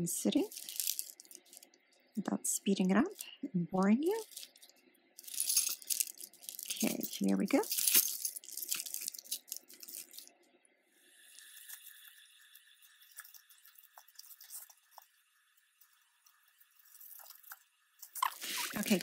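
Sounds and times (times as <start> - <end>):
beads and chain links jingling: 0.4 - 1.6, 4.1 - 10.3, 18.2 - 19.0.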